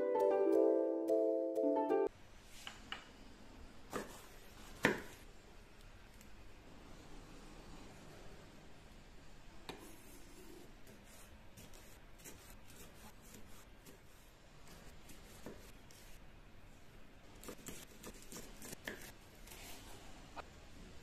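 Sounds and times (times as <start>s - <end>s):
knife cutting pepper on wooden board: 17.4s - 19.7s.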